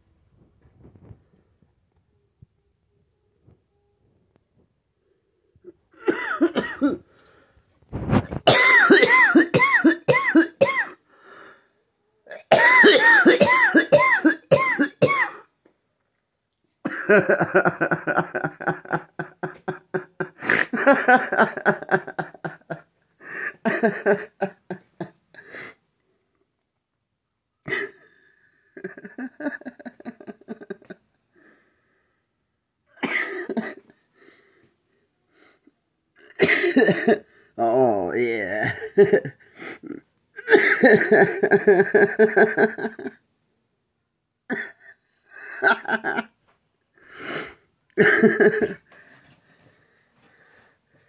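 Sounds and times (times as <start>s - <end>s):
person coughing: 6.0s - 7.0s, 8.5s - 11.0s, 12.3s - 15.5s, 33.0s - 34.0s, 36.4s - 37.3s, 38.6s - 41.5s, 44.5s - 45.0s, 48.0s - 48.9s.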